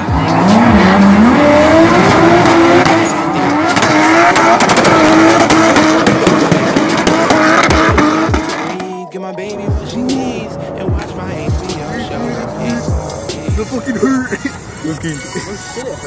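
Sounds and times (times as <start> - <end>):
car engine revving: 0.0 - 15.2.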